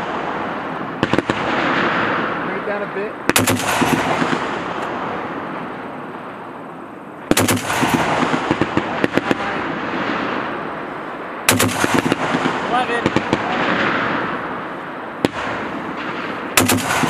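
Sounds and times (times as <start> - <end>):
rolling echo of gunfire: 0.0 - 17.0
heavy machine gun firing: 3.3 - 5.2, 7.3 - 10.4, 11.5 - 14.4, 15.2 - 17.0.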